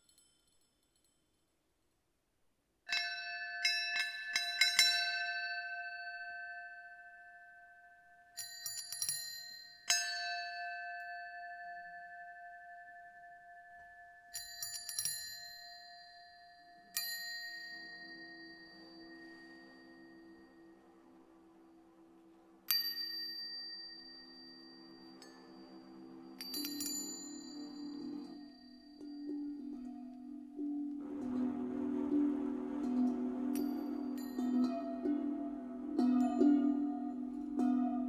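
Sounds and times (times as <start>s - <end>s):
metallic bell-like strikes: 15.4s - 21.8s, 22.7s - 38.0s
low drone of held tones: 29.0s - 38.0s.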